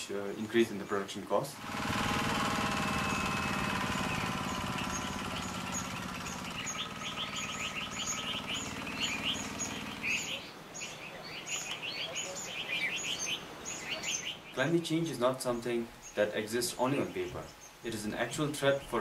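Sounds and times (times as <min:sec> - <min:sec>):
birds chirping: 0:00.0 - 0:19.0
water pump engine running: 0:01.6 - 0:10.4.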